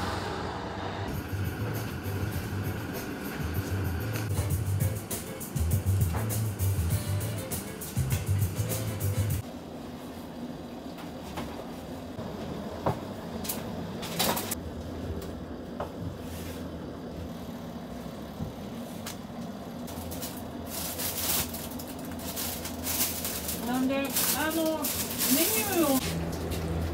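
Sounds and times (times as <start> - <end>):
low hum of kitchen machinery: 1.1 - 26.9
paper rustling: 19.9 - 26.2.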